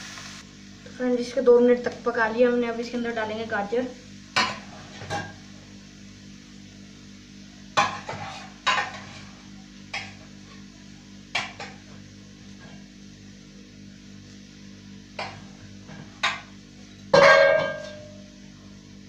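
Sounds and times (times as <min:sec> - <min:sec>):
utensils knocking on frying pan: 0:04.4 - 0:05.4, 0:07.8 - 0:09.3, 0:09.9 - 0:10.3, 0:11.3 - 0:11.9, 0:15.2 - 0:16.6, 0:17.2 - 0:18.3.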